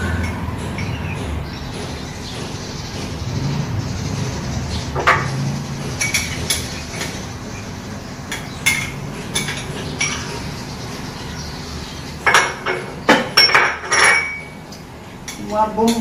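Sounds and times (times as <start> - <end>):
loud knocks: 0.0 - 7.4.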